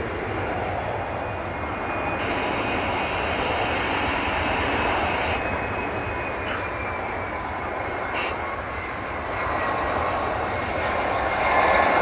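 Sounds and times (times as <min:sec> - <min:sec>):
jet engines rumbling overhead: 0:00.0 - 0:12.0.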